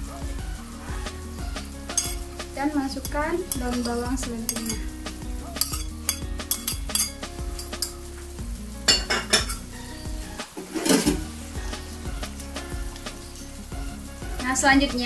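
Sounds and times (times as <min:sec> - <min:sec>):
metal spatula scraping in wok: 0:01.9 - 0:08.0, 0:08.9 - 0:13.6
spoon clinking on ceramic plate: 0:02.0 - 0:02.2, 0:04.5 - 0:04.9, 0:05.6 - 0:07.9, 0:08.9 - 0:09.6.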